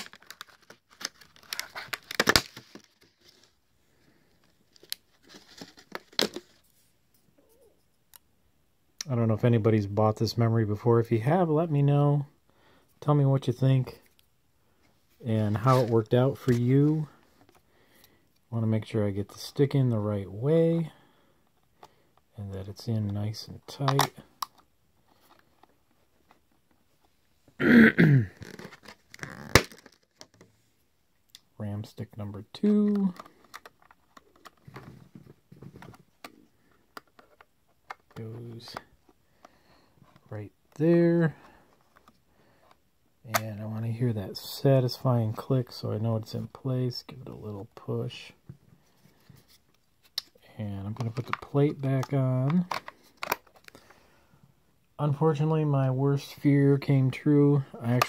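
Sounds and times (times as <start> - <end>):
plastic packaging crackling: 0.0 - 3.5
man grunting or clearing throat: 27.6 - 28.4.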